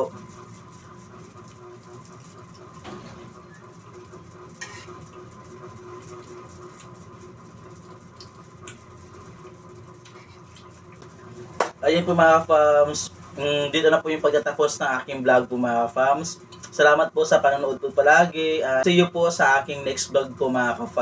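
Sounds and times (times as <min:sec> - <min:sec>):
low room hum: 0:00.0 - 0:21.0
quiet chewing: 0:06.3 - 0:07.1, 0:10.0 - 0:11.2.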